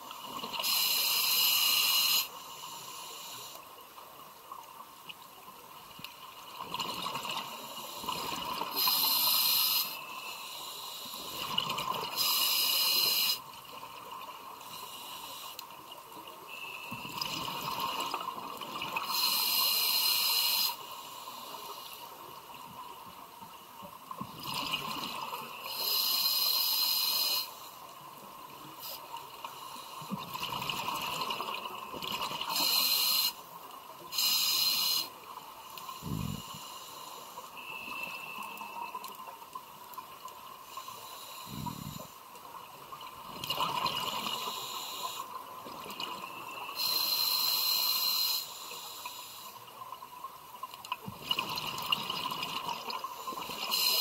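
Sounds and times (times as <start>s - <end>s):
regulator inhalation hiss: 0.6s - 3.6s, 7.5s - 11.5s, 12.2s - 13.5s, 14.6s - 15.7s, 19.0s - 22.1s, 25.6s - 27.8s, 32.5s - 33.4s, 34.1s - 38.9s, 44.3s - 45.4s, 46.6s - 49.6s, 53.1s - 54.0s.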